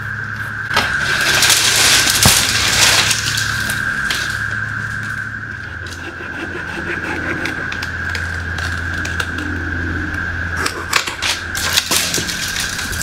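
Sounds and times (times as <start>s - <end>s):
cicada chorus droning: 0.0s - 13.0s
low steady hum: 0.0s - 13.0s
twigs snapping and crackling: 0.7s - 6.0s, 7.7s - 9.5s, 10.6s - 13.0s.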